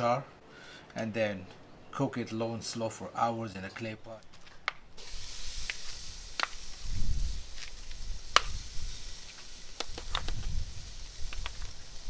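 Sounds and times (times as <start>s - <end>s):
meat sizzling on a grill: 5.0s - 12.0s.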